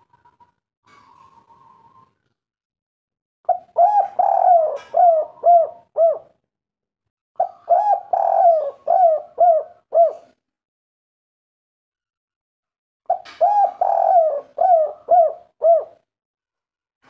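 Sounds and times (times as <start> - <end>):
dove cooing: 0.0 - 2.2, 3.5 - 6.4, 7.4 - 10.4, 13.1 - 16.0.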